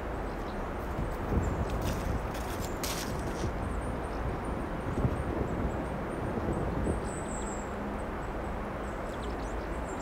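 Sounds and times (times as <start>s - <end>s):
wind rumble on microphone: 0.0s - 10.0s
footsteps on soil: 0.9s - 3.6s.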